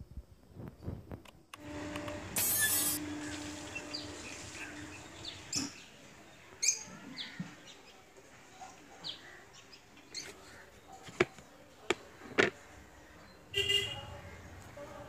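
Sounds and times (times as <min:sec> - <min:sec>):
birds chirping: 0:02.1 - 0:08.0.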